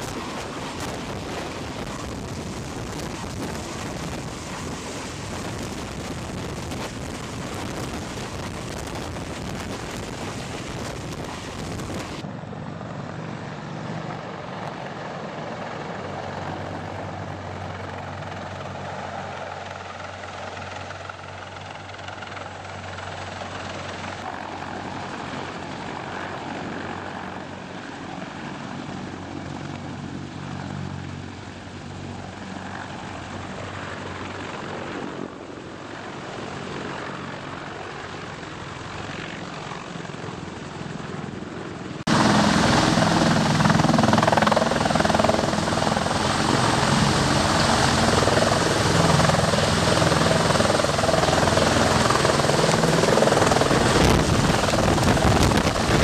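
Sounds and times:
helicopter engines and rotors droning: 0:00.0 - 0:56.0
rotor wash blasting microphone: 0:50.8 - 0:56.0.

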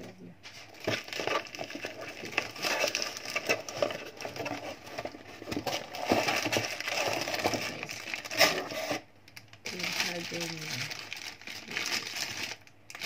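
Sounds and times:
plastic packaging crinkling: 0:00.5 - 0:13.0
small clicks and crackles: 0:00.8 - 0:08.6, 0:09.3 - 0:13.0.

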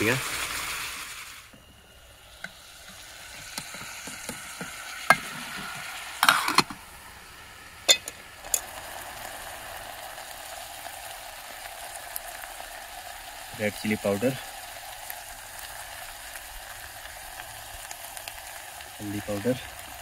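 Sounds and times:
vegetables sizzling in oil: 0:00.0 - 0:20.0
spoon scraping a pan: 0:02.4 - 0:06.8.

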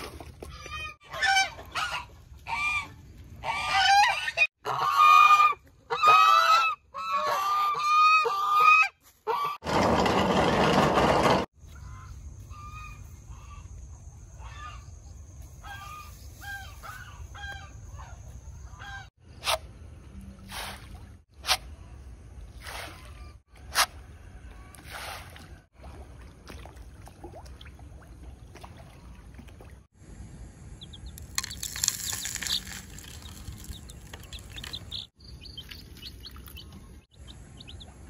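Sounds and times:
geese honking: 0:01.0 - 0:09.6.

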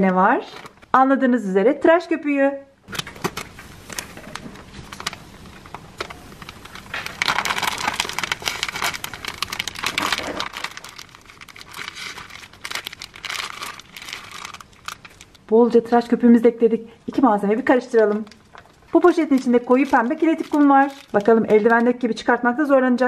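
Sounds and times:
foam crackling: 0:02.9 - 0:15.6, 0:17.9 - 0:22.0
plastic bag crinkling: 0:02.9 - 0:16.0, 0:17.7 - 0:22.2.

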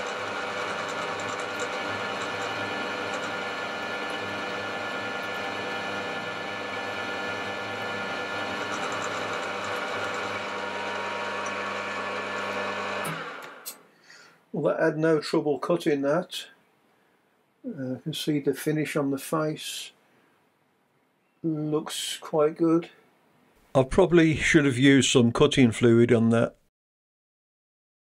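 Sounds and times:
countersink cutting metal: 0:00.0 - 0:13.8
milling machine motor and gear hum: 0:00.0 - 0:13.8.

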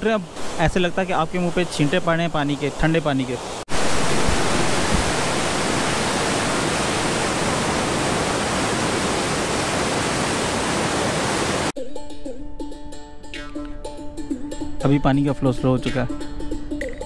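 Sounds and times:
water rushing over drop wall: 0:03.6 - 0:11.7
background music: 0:11.8 - 0:17.0.

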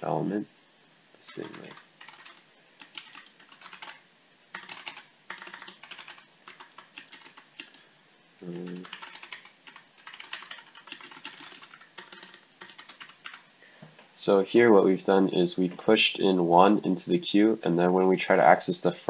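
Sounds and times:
computer keyboard typing: 0:01.3 - 0:07.8, 0:08.5 - 0:13.4.

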